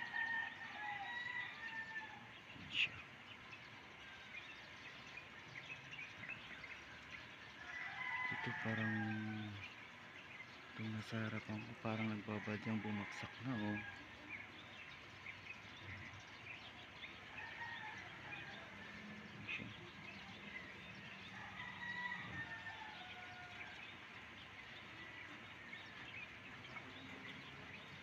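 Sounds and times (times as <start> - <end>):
rooster crowing: 0.0 - 2.4, 7.6 - 9.6, 12.2 - 14.4, 17.2 - 19.6, 20.2 - 24.0
distant birds chirping: 0.0 - 28.0.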